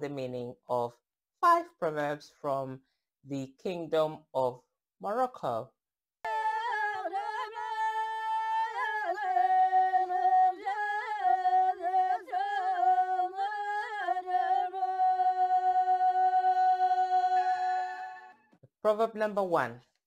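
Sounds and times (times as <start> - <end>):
person singing unaccompanied: 6.2 - 18.4.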